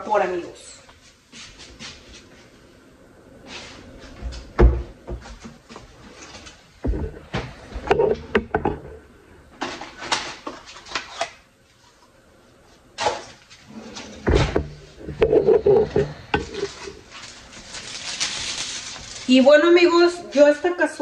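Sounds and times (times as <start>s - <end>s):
kitchen knocks and clatters: 14.0s - 17.0s.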